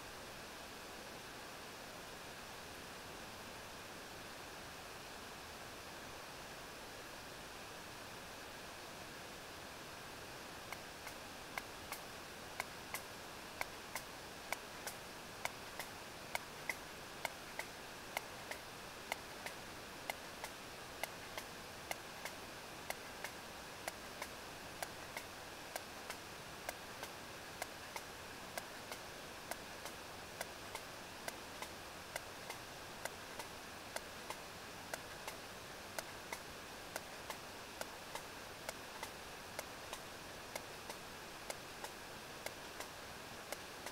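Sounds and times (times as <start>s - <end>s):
steady hiss: 0.0s - 43.9s
whale echolocation clicks: 43.5s - 43.9s.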